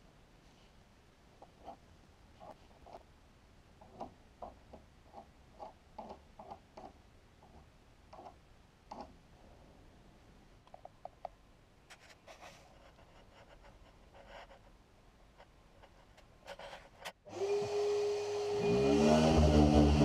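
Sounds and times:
electric sander running: 17.3 - 20.0
motor whine: 17.3 - 20.0.

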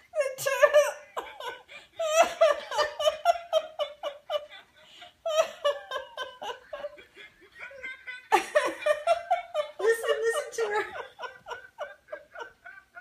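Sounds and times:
woman laughing: 0.1 - 13.0.

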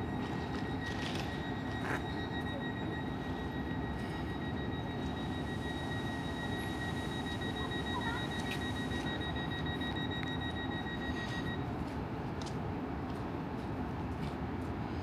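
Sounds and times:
electric train humming: 0.0 - 11.5
rapid high-pitched beeping: 0.0 - 11.6.

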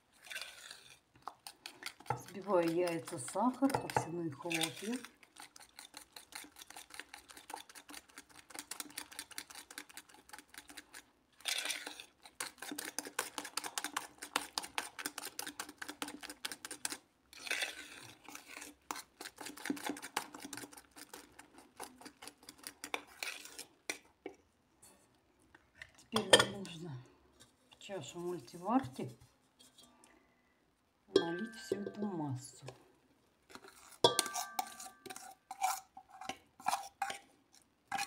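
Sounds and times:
fork clicking against bowl: 34.0 - 37.2.

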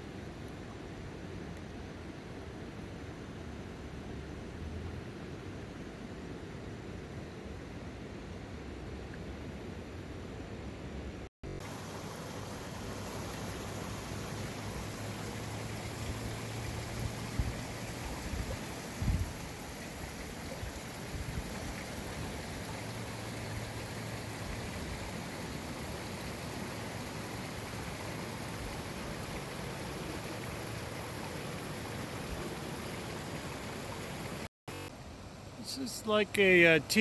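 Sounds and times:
water flowing over rocks: 11.5 - 34.5.

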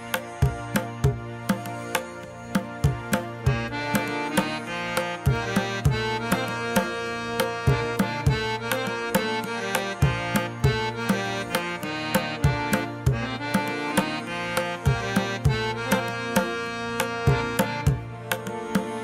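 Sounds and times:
sustained melody: 0.0 - 19.0
steady drum beat: 0.2 - 4.4.

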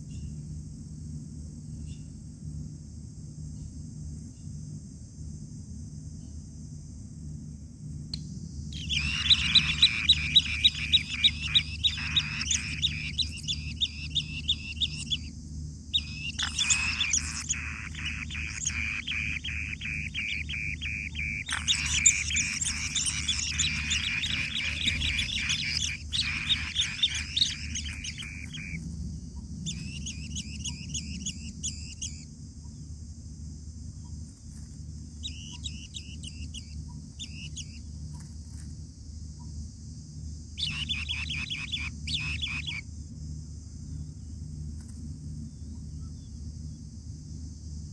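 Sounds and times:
high insect hiss: 0.0 - 47.9
birds chirping rapidly: 8.7 - 28.8, 29.7 - 32.2, 35.2 - 37.8, 40.6 - 42.8.

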